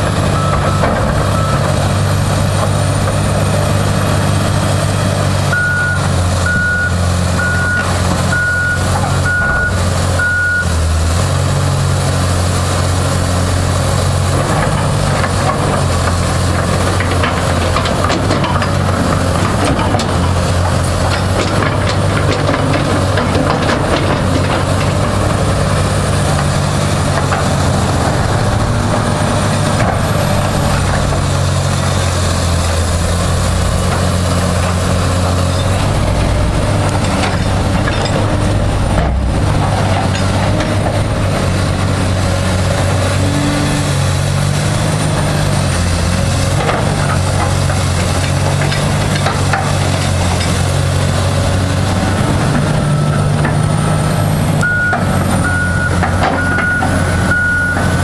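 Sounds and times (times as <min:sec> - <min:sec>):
excavator diesel engine running: 0:00.0 - 0:58.0
backup alarm tone: 0:05.5 - 0:10.8, 0:54.6 - 0:58.0.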